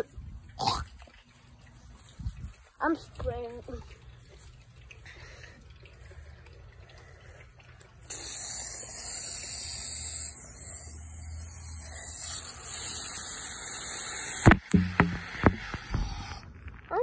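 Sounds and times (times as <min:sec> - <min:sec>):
hose water spraying on foot: 0:00.9 - 0:17.0
sharp knock: 0:14.4 - 0:16.3.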